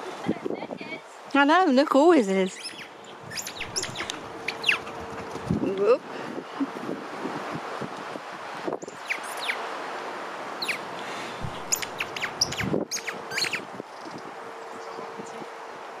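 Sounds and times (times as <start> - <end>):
outdoor background noise: 0.0 - 16.0
small birds chirping: 2.4 - 5.1, 8.8 - 9.6, 10.6 - 15.4.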